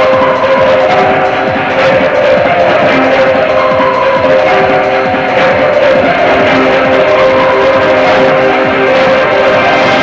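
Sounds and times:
instrumental music with held notes: 0:00.0 - 0:10.0.

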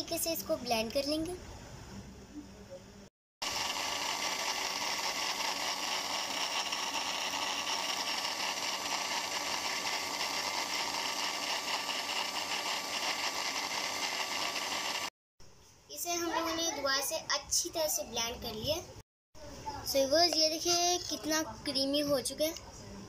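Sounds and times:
blender motor whirring: 0:03.4 - 0:15.1.

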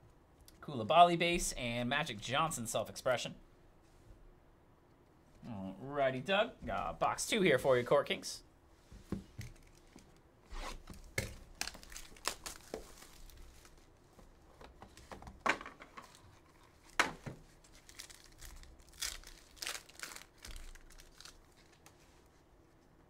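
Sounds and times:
foil wrapper crinkling and ripping: 0:11.4 - 0:13.8, 0:17.6 - 0:22.0.

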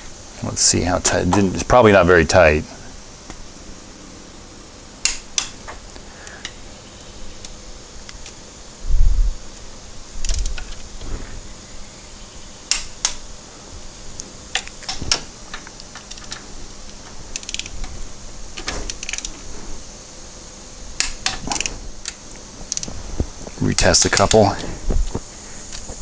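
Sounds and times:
ratcheting torque wrench clicks: 0:10.2 - 0:10.8, 0:17.3 - 0:17.9, 0:18.9 - 0:19.4.

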